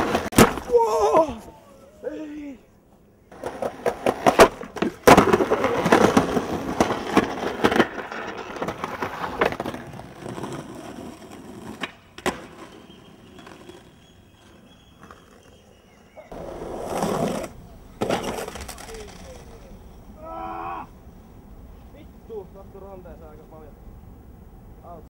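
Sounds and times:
skateboard clacks: 0:00.0 - 0:00.7, 0:03.3 - 0:19.7
skateboard grinding on concrete: 0:00.0 - 0:00.7, 0:03.3 - 0:20.0
skateboard wheels rolling: 0:00.0 - 0:22.0.

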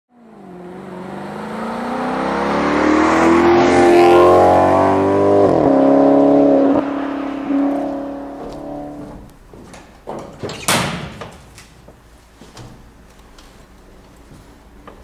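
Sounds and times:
car engine revving: 0:00.1 - 0:09.3.

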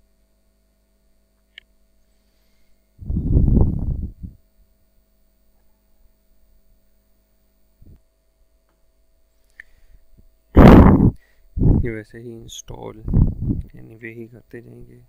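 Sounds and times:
faint steady hum: 0:00.0 - 0:15.0
short loud noise burst: 0:10.6 - 0:11.2.

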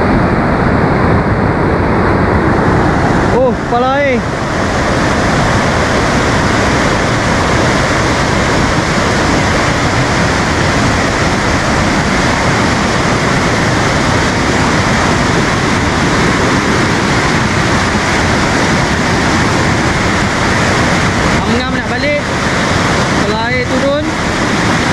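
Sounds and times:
floodwater rushing over boulders: 0:00.0 - 0:24.9.

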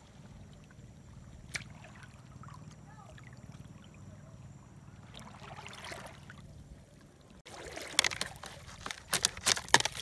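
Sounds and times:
low steady rumble: 0:00.0 - 0:07.7
water swishing and splashing: 0:00.0 - 0:10.0.

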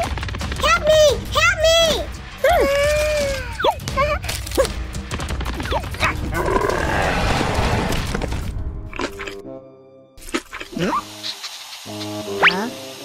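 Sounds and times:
background music: 0:00.0 - 0:13.0
rasping growl: 0:06.2 - 0:08.1.

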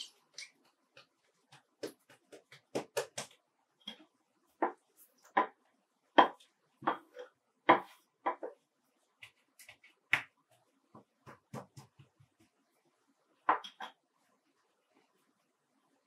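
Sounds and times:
hands patting dough on board: 0:00.9 - 0:03.4, 0:09.2 - 0:12.6.

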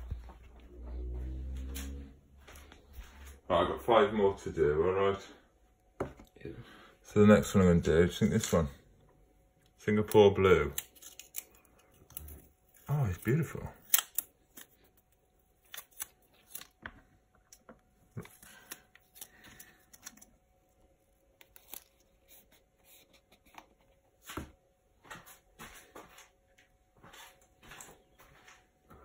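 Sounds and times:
faint steady hum: 0:00.0 - 0:29.0.

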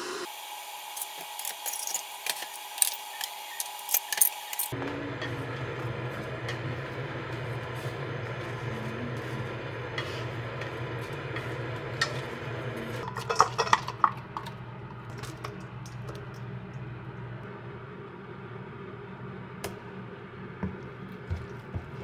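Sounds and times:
steady low hum: 0:04.6 - 0:22.0
utensils clinking against pan: 0:08.3 - 0:14.6.

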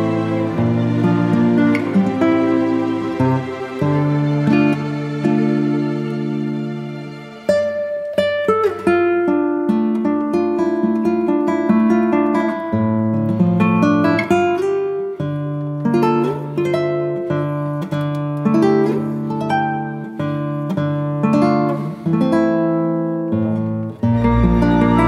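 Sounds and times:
plucked guitar melody: 0:00.0 - 0:25.0
music track with low tone: 0:24.0 - 0:25.0.

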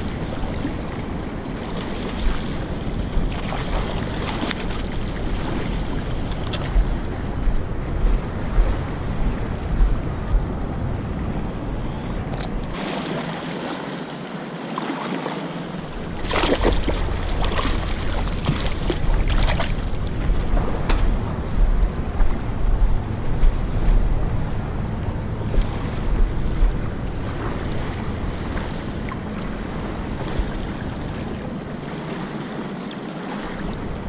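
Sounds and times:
wind buffeting microphone: 0:00.0 - 0:13.7, 0:15.7 - 0:34.0
small waves lapping: 0:00.0 - 0:34.0.

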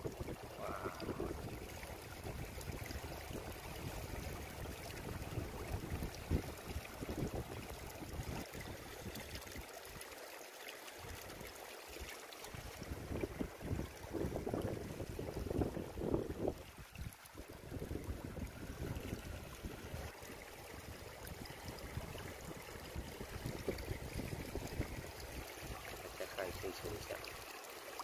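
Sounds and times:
faint seawater wash: 0:00.0 - 0:02.0, 0:24.7 - 0:28.0
wind buffeting microphone: 0:00.0 - 0:09.3, 0:12.6 - 0:25.4.

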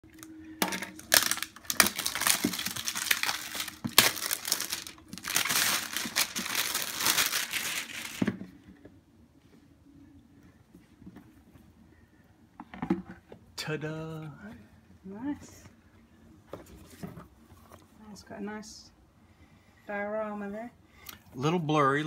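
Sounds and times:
plastic shrink-wrap crinkling: 0:00.1 - 0:08.4.

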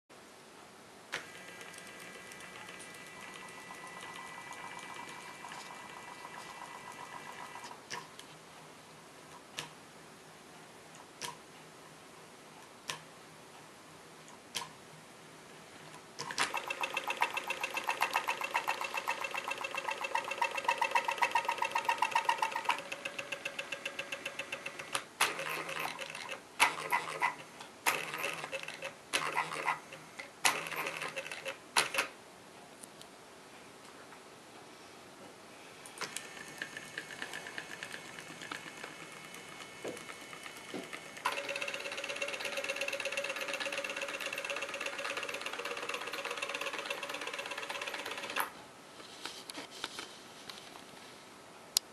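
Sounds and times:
stepper motor clicks: 0:01.1 - 0:08.2, 0:16.2 - 0:32.1, 0:35.9 - 0:48.5
stepper motor stuttering bursts: 0:16.4 - 0:31.5, 0:36.1 - 0:48.5.

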